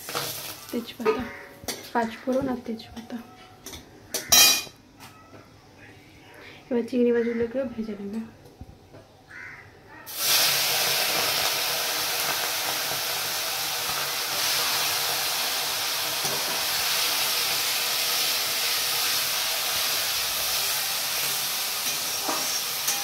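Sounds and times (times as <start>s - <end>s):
prawns sizzling in hot oil: 0.0s - 2.4s, 10.1s - 23.0s.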